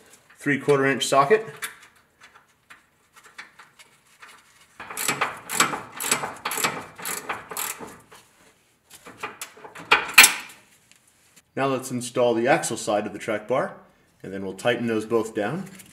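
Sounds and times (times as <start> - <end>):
hand ratchet clicking: 4.8 - 8.2.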